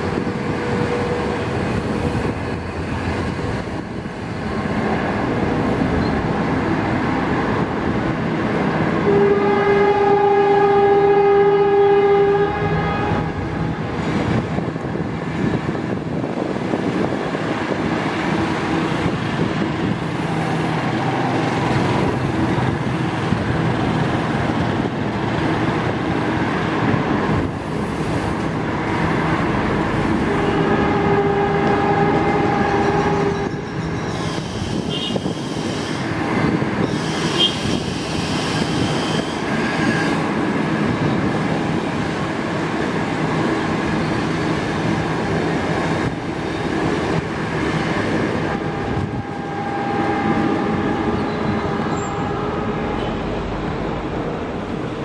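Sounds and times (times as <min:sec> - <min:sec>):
train rumbling on rails: 0:00.0 - 0:55.0
train horn: 0:09.0 - 0:13.8, 0:30.2 - 0:34.0, 0:34.7 - 0:36.0, 0:36.9 - 0:40.2, 0:48.3 - 0:53.3
high wheel squeals: 0:31.8 - 0:36.2, 0:36.8 - 0:40.3, 0:48.5 - 0:53.3.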